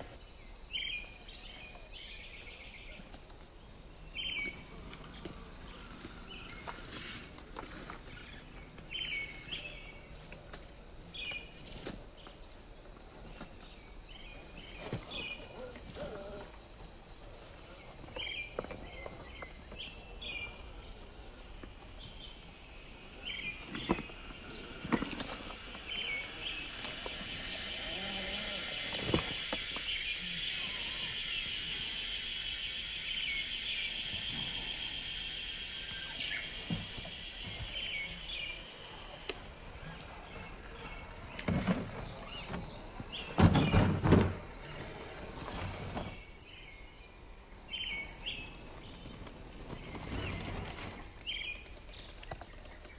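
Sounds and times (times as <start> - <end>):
birds chirping: 0.0 - 52.9
steady high buzz: 19.9 - 41.3.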